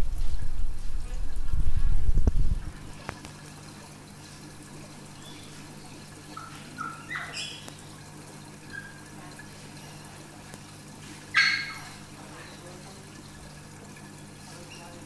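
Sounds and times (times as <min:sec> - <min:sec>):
steady low hum: 0:00.0 - 0:06.9
water trickling from aquarium filter: 0:00.0 - 0:15.0.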